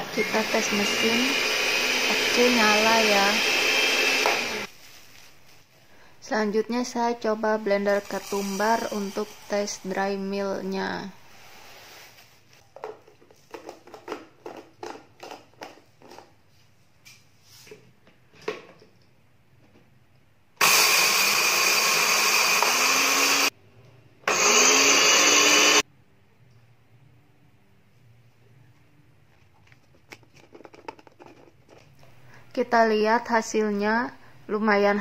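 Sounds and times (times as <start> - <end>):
blender grinding seeds: 0.0 - 4.7, 20.6 - 23.5, 24.3 - 25.8.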